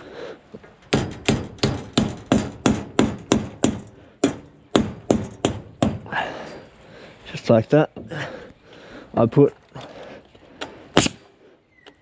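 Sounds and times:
hammer striking nail: 0.9s - 6.0s.

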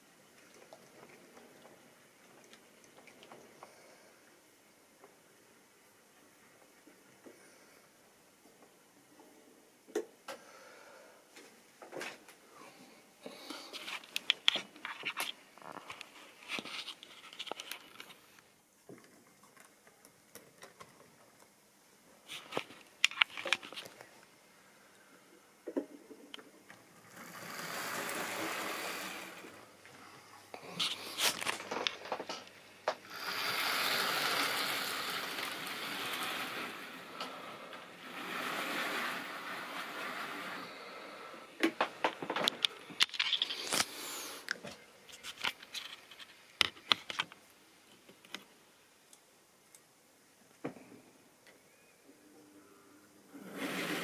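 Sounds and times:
model train rumbling: 33.1s - 41.3s.

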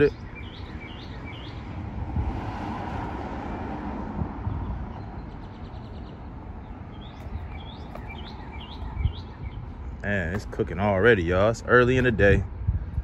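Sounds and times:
small birds chirping: 0.0s - 1.8s, 4.6s - 11.0s.

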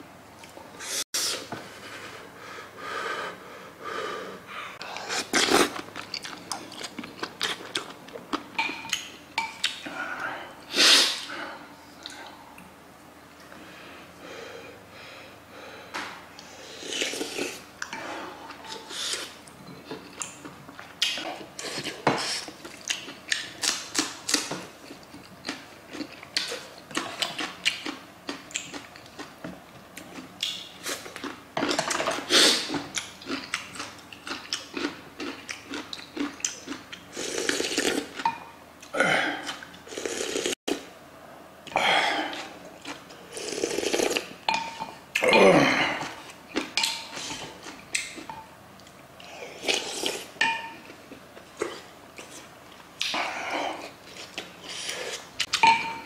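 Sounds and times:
chewing: 5.0s - 9.8s, 18.5s - 29.3s, 30.0s - 38.3s
slurping soup: 39.4s - 40.6s, 43.3s - 44.3s.

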